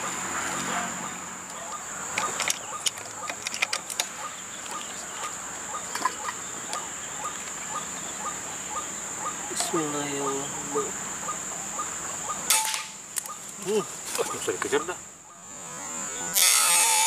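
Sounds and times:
high insect drone: 0:00.0 - 0:17.0
waterhen clucking calls: 0:00.0 - 0:17.0
sharp clicks: 0:01.4 - 0:07.6.

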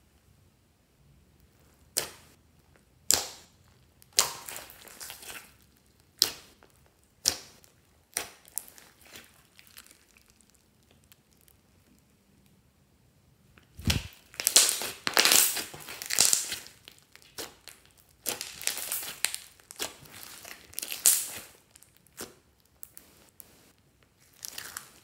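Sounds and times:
slime squeezed with wet pops: 0:03.0 - 0:06.6, 0:13.6 - 0:23.1.

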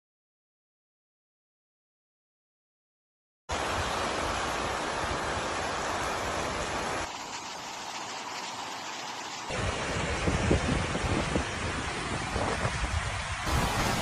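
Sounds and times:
storm wind roaring: 0:09.5 - 0:14.0.

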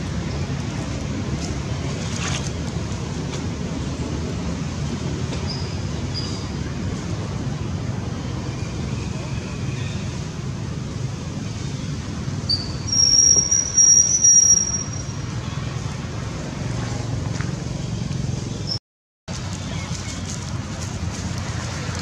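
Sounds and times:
low outdoor rumble: 0:00.0 - 0:22.0
high thin whistling tone: 0:12.5 - 0:15.2.

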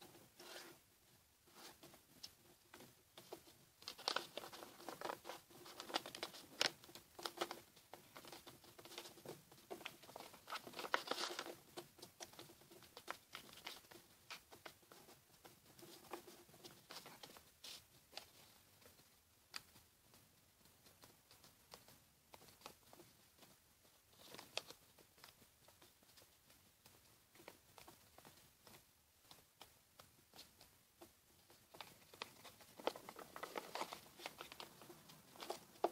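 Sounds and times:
paper crinkling and rustling: 0:01.5 - 0:15.1, 0:31.6 - 0:35.9.

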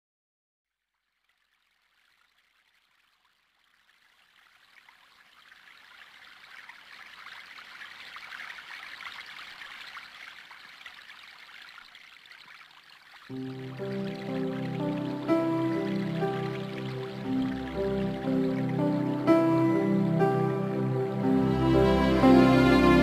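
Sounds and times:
stream water rushing: 0:04.8 - 0:23.0
music with sustained notes: 0:13.3 - 0:23.0.

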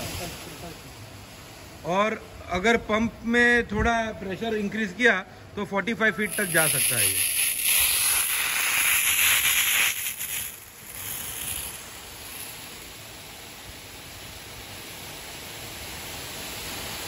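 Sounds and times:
high-pressure water jet hissing: 0:00.0 - 0:01.0, 0:06.0 - 0:17.0.

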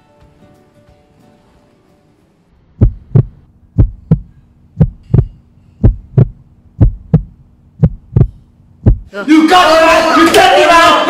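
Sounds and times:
heartbeat thumps: 0:02.8 - 0:09.1.

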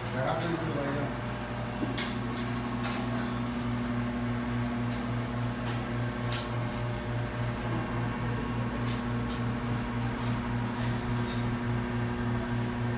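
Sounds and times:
low machine hum: 0:00.0 - 0:12.9.

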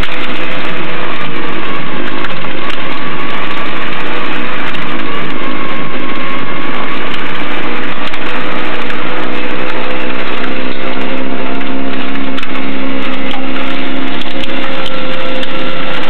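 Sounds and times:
snowblower engine din: 0:00.0 - 0:16.0.

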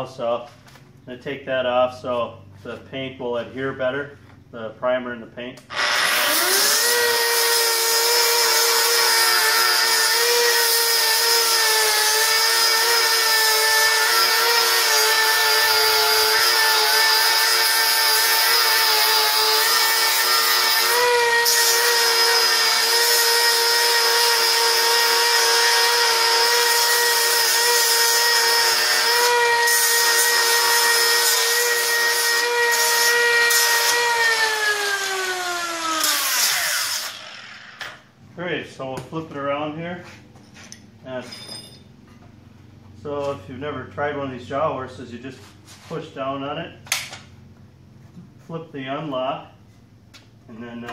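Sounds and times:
electric grinder grinding steel: 0:05.7 - 0:38.0.

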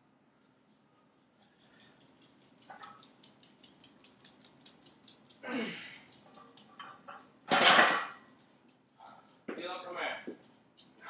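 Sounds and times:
iron plates clattering on floor: 0:05.7 - 0:08.4.

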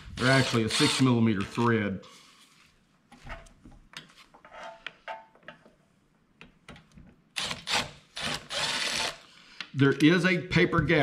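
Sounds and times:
electric ratchet running: 0:07.4 - 0:09.2.

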